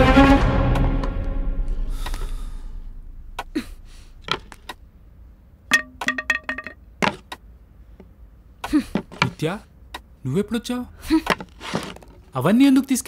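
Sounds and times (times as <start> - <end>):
background music: 0.0 - 3.6.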